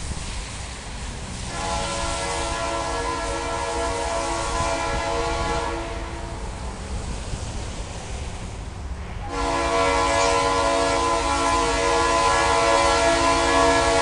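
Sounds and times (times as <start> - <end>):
low train rumble: 0.0 - 14.0
locomotive air horn blasts: 1.5 - 6.4, 9.3 - 14.0.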